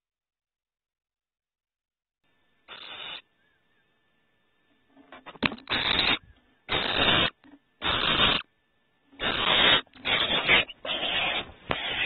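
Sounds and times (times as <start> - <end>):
barn owl hissing: 2.7 - 3.6, 5.7 - 8.5, 9.2 - 12.0.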